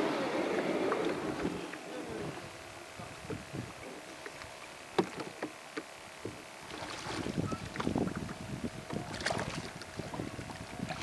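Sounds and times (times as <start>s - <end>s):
water splashing around hull: 0.0s - 11.0s
paddle knocking on kayak hull: 5.0s - 9.4s.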